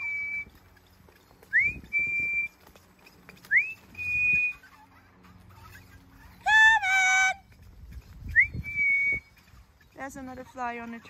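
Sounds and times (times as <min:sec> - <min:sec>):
person whistling a call: 0:00.0 - 0:00.5, 0:01.5 - 0:02.5, 0:03.5 - 0:04.6, 0:08.3 - 0:09.3.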